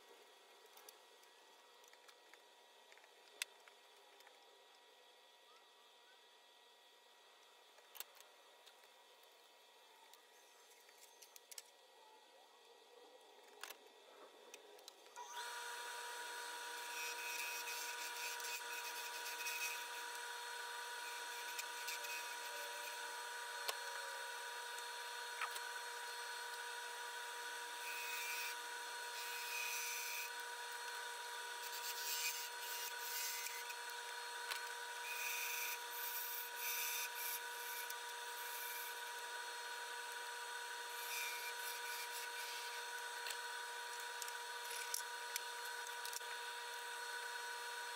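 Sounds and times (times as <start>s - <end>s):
wood lathe whining: 15.1s - 47.9s
gouge scraping spinning wood: 15.7s - 24.5s, 25.1s - 44.9s.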